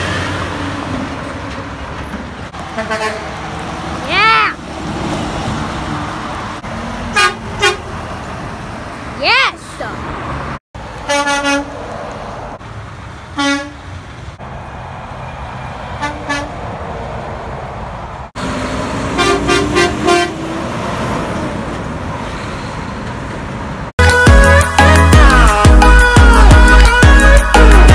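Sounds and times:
road traffic noise: 0:00.0 - 0:27.9
truck air horn blasts: 0:02.7 - 0:03.4, 0:07.1 - 0:07.9, 0:11.0 - 0:11.8, 0:13.4 - 0:13.8, 0:16.0 - 0:16.6, 0:19.1 - 0:20.4.

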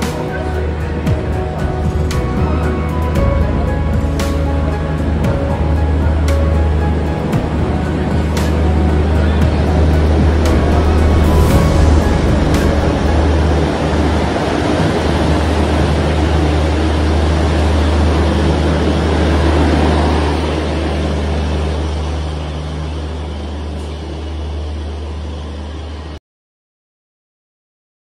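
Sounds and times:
electric locomotive hum: 0:00.0 - 0:26.2
train wheels rumbling on rails: 0:05.0 - 0:20.6.

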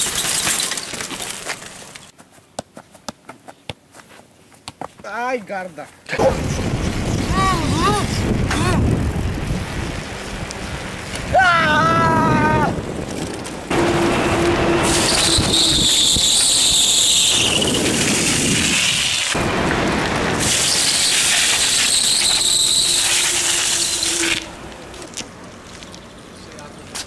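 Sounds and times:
wind and road noise: 0:00.0 - 0:27.0
bicycle brake squeal: 0:14.7 - 0:19.3, 0:20.5 - 0:24.5.

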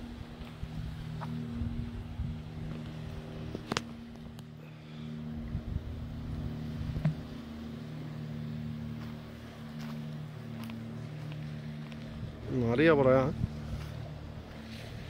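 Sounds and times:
wind noise: 0:00.0 - 0:02.9, 0:05.4 - 0:07.3, 0:13.2 - 0:14.0
low engine drone: 0:00.0 - 0:15.0.

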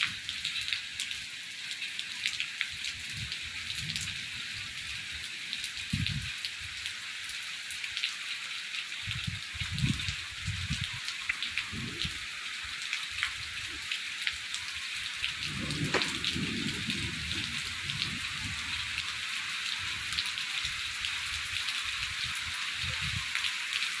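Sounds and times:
rain falling on foliage: 0:00.0 - 0:24.0
low rumbles: 0:15.3 - 0:18.9.

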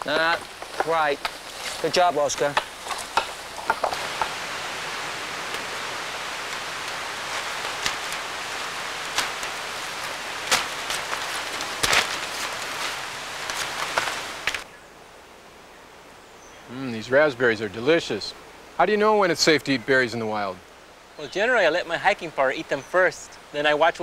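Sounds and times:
rain on foliage: 0:00.0 - 0:14.7, 0:16.7 - 0:24.0.

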